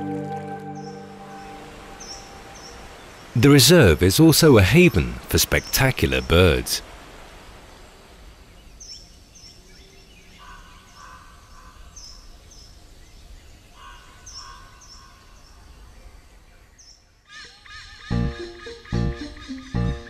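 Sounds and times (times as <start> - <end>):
high bird calls: 0.7 - 3.4, 17.3 - 20.0
warbled bird phrase: 2.0 - 6.8.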